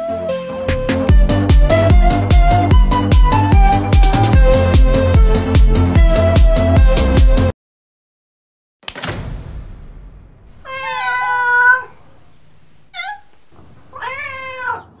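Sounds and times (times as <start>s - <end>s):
cat meowing: 10.6s - 15.0s.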